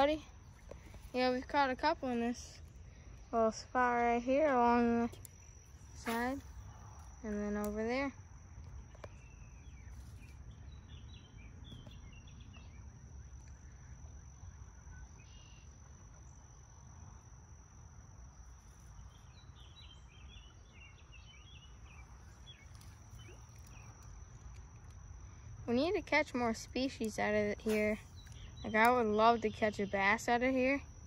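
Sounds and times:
insect trill: 0.0s - 31.0s
small birds chirping: 26.7s - 30.4s.

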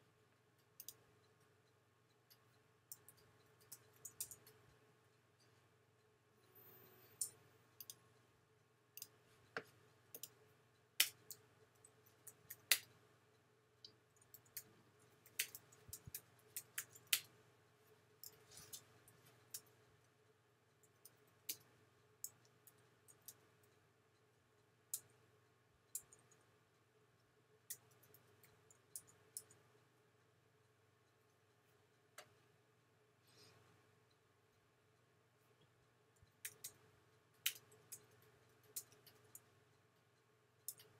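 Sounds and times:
faint steady hum: 0.0s - 40.9s
mouse clicking: 0.6s - 1.5s, 2.2s - 4.8s, 6.4s - 8.2s, 8.9s - 13.1s, 13.8s - 17.4s, 20.8s - 23.8s, 24.9s - 25.2s, 25.9s - 26.5s, 27.6s - 29.7s, 36.2s - 39.5s, 40.6s - 40.9s.

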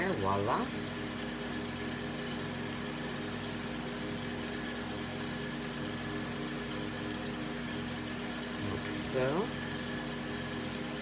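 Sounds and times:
motor humming: 0.0s - 11.0s.

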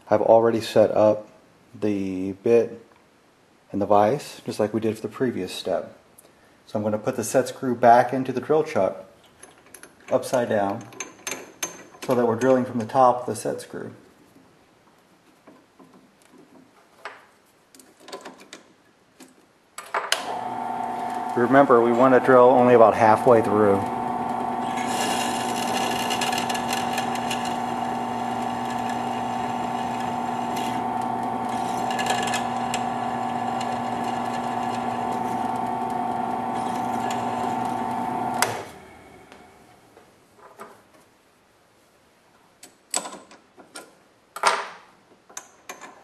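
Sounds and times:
drill press motor hum: 20.2s - 39.8s.

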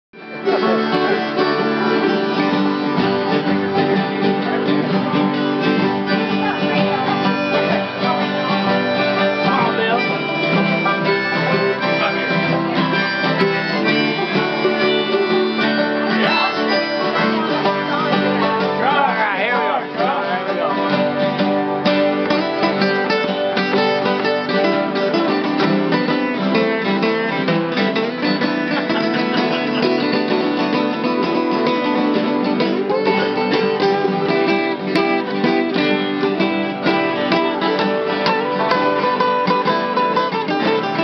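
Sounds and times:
acoustic guitars strumming: 0.2s - 41.0s
plucked string instruments: 0.2s - 41.0s.

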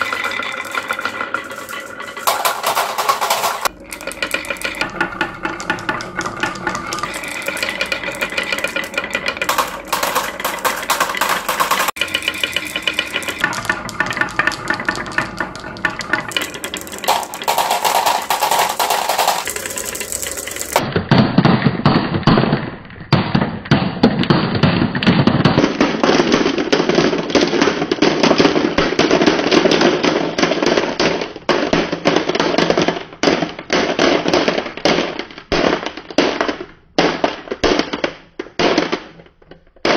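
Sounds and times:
marbles clattering on wooden tracks: 0.0s - 20.8s.

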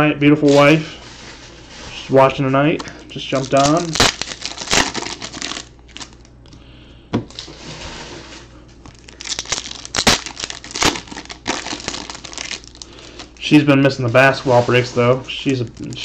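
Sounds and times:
foil packs tearing and crinkling: 3.3s - 6.2s, 8.9s - 13.5s, 15.4s - 16.0s.

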